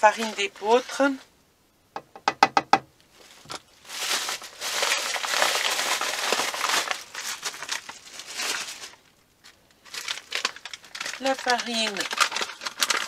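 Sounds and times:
plastic bag crinkling: 3.1s - 13.0s.

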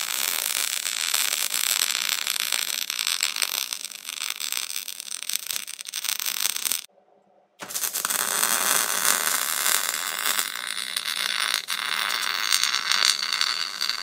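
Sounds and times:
arc welding crackling sizzle: 0.0s - 6.9s, 7.6s - 14.0s.

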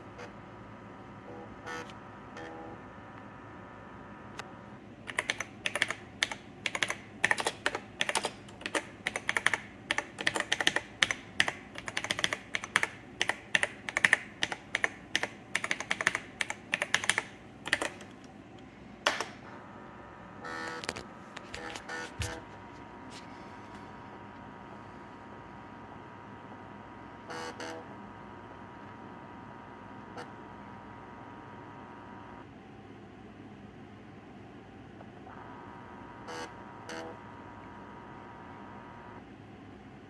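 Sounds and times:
laptop keyboard clicks: 5.1s - 18.1s.

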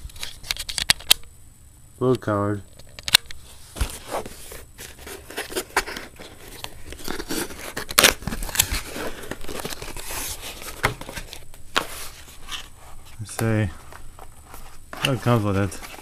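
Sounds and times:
cardboard box rustling and clicking: 3.8s - 12.7s.

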